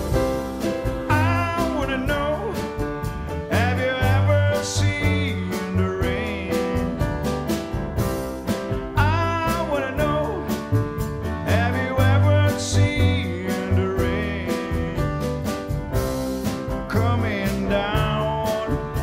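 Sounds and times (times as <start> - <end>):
acoustic piano: 0.0 - 19.0
drum kit beat: 0.0 - 19.0
upright double bass walking: 0.0 - 19.0
wordless vocal slides: 0.6 - 7.0, 9.0 - 15.5.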